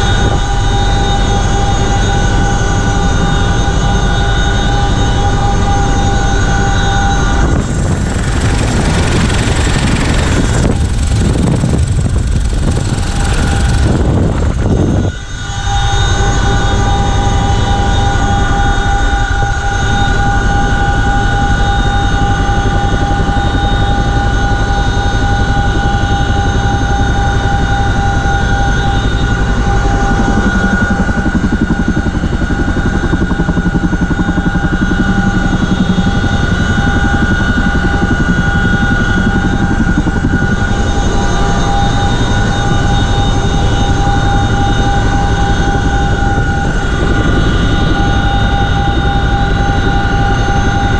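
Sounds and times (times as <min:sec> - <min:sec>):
high gearbox whine: 0:00.0 - 0:17.9
helicopter rotors and turbines droning: 0:00.0 - 0:50.9.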